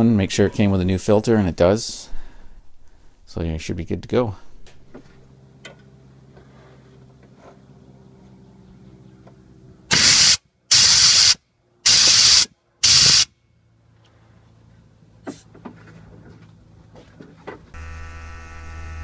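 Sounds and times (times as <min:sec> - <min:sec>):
compressed air blasts: 0:09.9 - 0:13.3.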